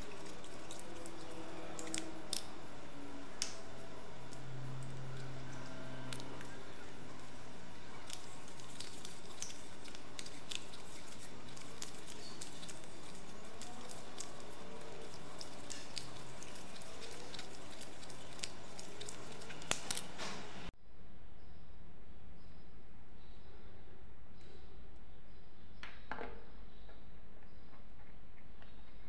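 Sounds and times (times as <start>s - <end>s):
tape crackles and clicks: 3.3s - 20.6s.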